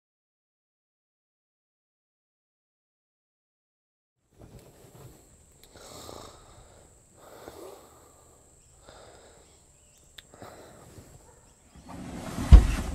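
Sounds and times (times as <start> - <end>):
man snoring: 5.7 - 9.5.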